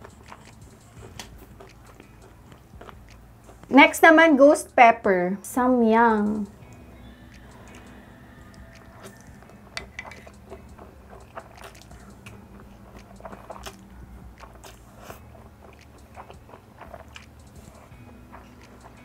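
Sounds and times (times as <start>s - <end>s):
wet mouth smacks and clicks: 0.2s - 3.6s, 8.5s - 19.0s.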